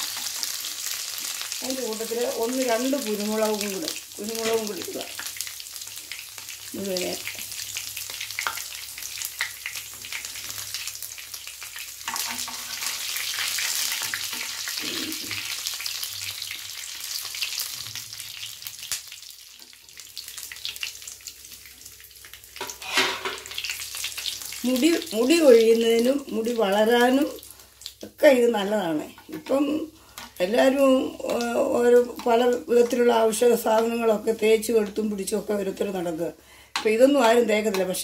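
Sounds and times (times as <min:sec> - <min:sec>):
oil sizzling in frying pan: 0:00.0 - 0:38.0
spoon scraping pan: 0:12.0 - 0:14.8, 0:22.6 - 0:23.6.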